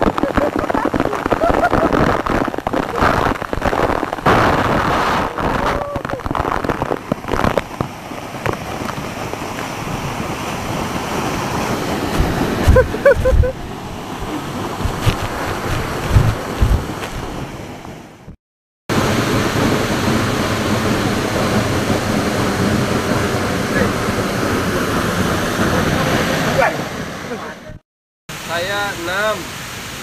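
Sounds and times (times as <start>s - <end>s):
waterfall rushing onto rocks: 0.0s - 18.0s, 18.9s - 27.4s, 28.3s - 30.0s
wind buffeting microphone: 8.4s - 17.6s.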